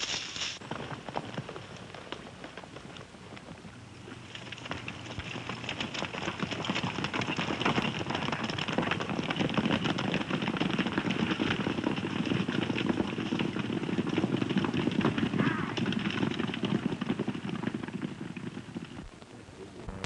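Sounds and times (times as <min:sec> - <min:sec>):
galloping horses hoofbeats: 0:00.6 - 0:20.0.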